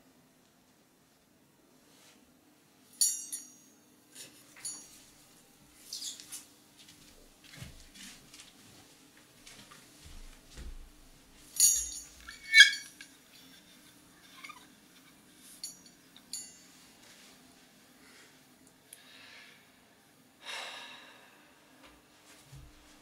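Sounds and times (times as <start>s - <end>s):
faint steady hum: 0.0s - 23.0s
sharp high clinks and squeaks: 4.5s - 5.0s, 11.6s - 14.7s, 15.5s - 16.7s
soft knocks and rustling: 6.0s - 12.4s, 22.3s - 23.0s.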